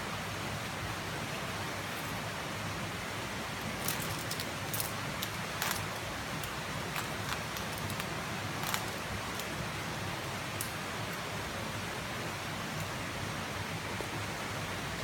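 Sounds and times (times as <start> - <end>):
steady rushing hiss: 0.0 - 15.0
carabiners clinking: 3.6 - 9.6, 10.3 - 11.3.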